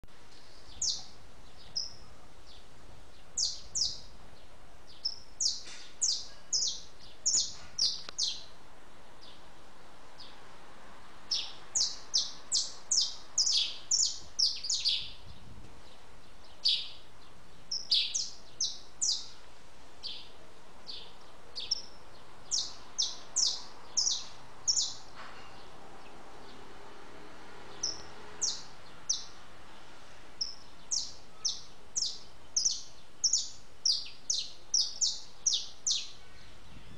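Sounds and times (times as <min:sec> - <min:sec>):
small birds chirping: 0:00.0 - 0:36.9
steady faint hiss: 0:00.1 - 0:36.9.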